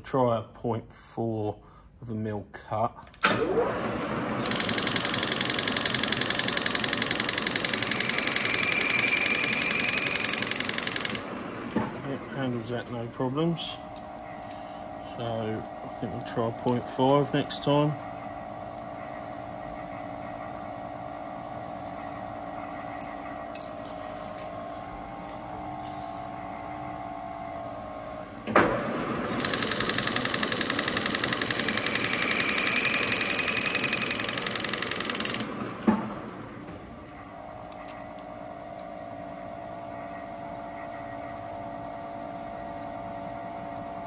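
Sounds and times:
milling machine spindle running: 3.5 - 20.6, 26.4 - 38.2.

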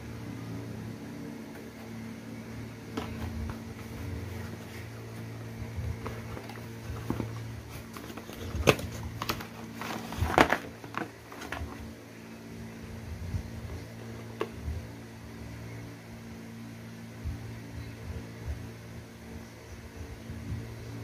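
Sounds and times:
steady low hum: 0.0 - 21.0
cardboard packaging handled: 2.8 - 11.9.

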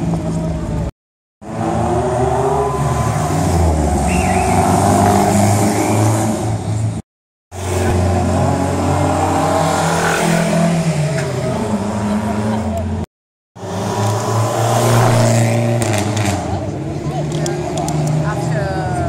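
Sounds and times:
sports car engines revving past: 7.6 - 13.0, 13.6 - 19.0.

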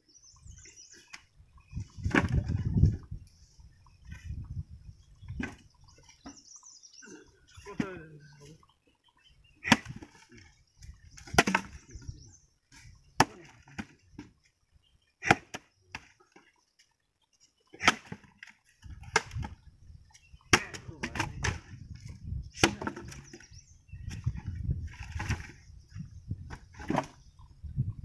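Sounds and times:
axe chopping wood: 9.6 - 10.1, 11.2 - 11.8, 13.2 - 14.3, 15.2 - 16.1, 17.8 - 19.5, 20.5 - 21.8, 22.6 - 23.3.

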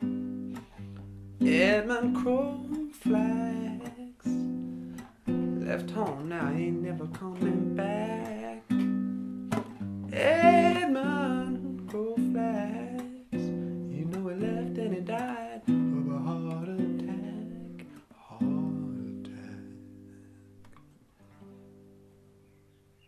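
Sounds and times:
strummed acoustic guitar: 0.0 - 23.0
person singing: 1.4 - 4.7, 5.5 - 8.9, 10.1 - 20.6.

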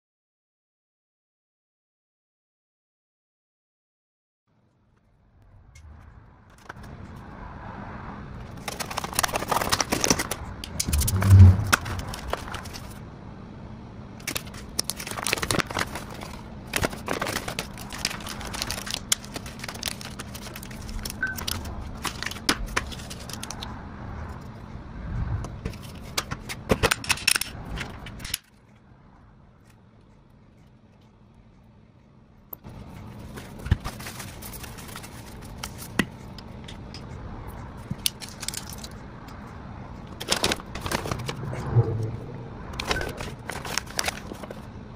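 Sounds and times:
packaging crinkling and tearing: 8.5 - 13.0, 14.2 - 23.6, 33.3 - 35.9, 38.0 - 38.9, 40.1 - 41.4, 42.8 - 44.7.

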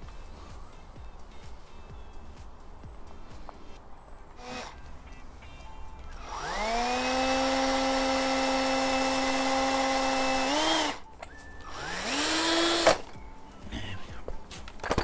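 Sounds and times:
power drill whine: 4.4 - 4.8, 6.1 - 13.1.

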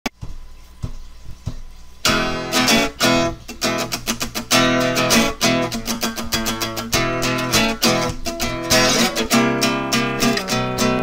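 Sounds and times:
soft taps: 0.1 - 1.8
strummed guitar chords: 2.0 - 11.0.

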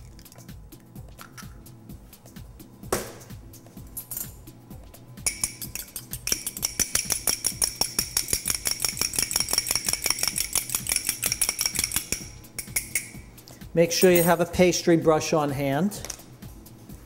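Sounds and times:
fork clinking against glass bowl: 5.2 - 13.2.

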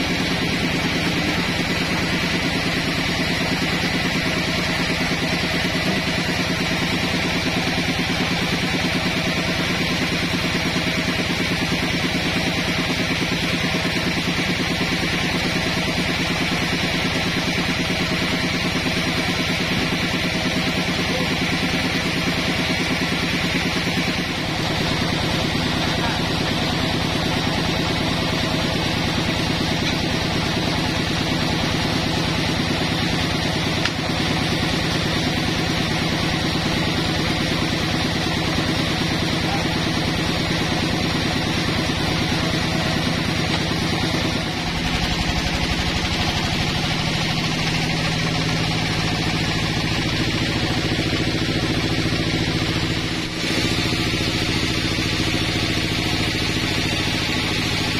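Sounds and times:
band sawmill droning: 0.0 - 57.9.

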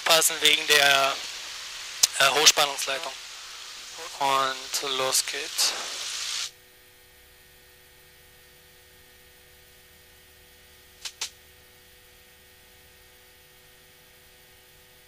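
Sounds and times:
faint electrical hum: 0.0 - 15.0
short clicks: 11.0 - 11.3.

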